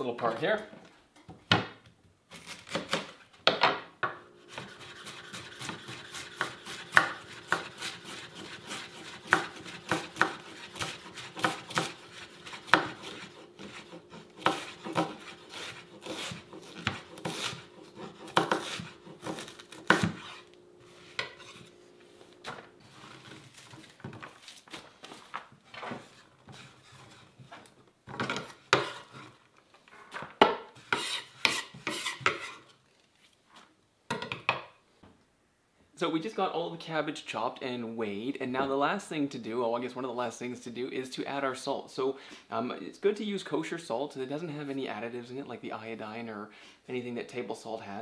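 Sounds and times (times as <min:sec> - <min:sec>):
knife chopping on wooden board: 0:04.5 - 0:20.4, 0:28.3 - 0:29.1.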